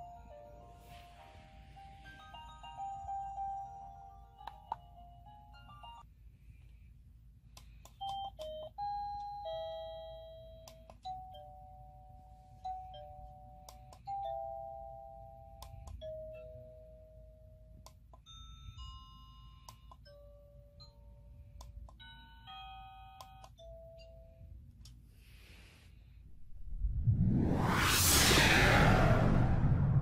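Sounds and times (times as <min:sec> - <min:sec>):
electronic doorbell chime melodies: 0:00.0 - 0:06.1, 0:08.0 - 0:21.2, 0:22.0 - 0:24.4.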